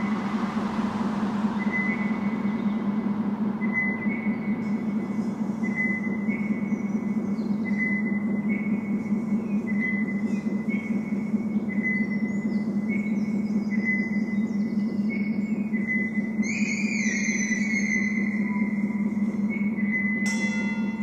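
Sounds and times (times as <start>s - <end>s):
road traffic hiss: 0.0s - 3.8s
low electronic drone: 0.0s - 21.0s.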